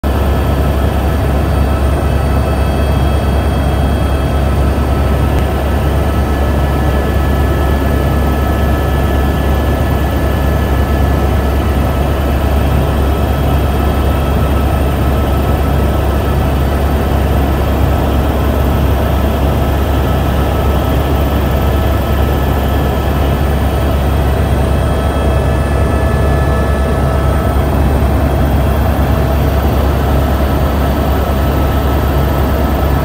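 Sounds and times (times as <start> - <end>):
helicopter rotor drone: 0.0 - 33.0
high-pitched whine: 0.1 - 33.0.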